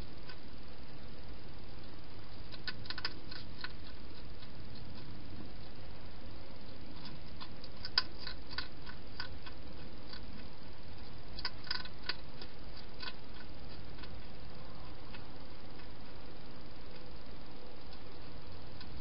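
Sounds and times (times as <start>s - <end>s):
steady hiss: 0.0s - 19.0s
hedgehog eating clicks: 1.8s - 5.8s, 6.6s - 14.4s, 17.8s - 19.0s.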